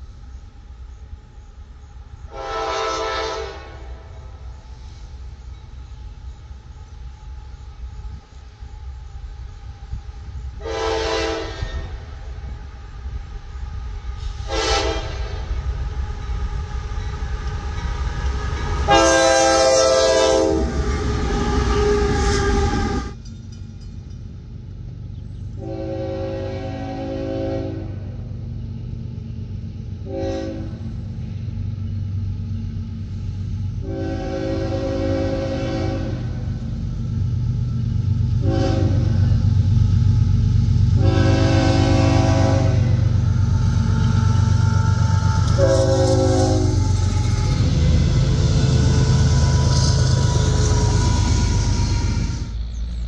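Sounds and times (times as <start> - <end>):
train engine rumble: 0.0 - 53.0
locomotive air horn blasts: 2.3 - 4.4, 10.6 - 12.1, 14.2 - 15.5, 18.9 - 23.2, 25.6 - 28.2, 30.0 - 30.9, 33.8 - 36.5, 38.4 - 39.4, 40.8 - 52.6.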